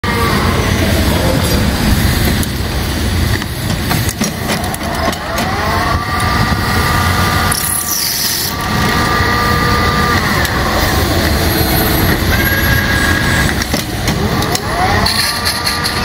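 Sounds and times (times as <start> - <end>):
metal lathe running: 0.0 - 16.0
high squealing cutting tones: 5.3 - 13.7.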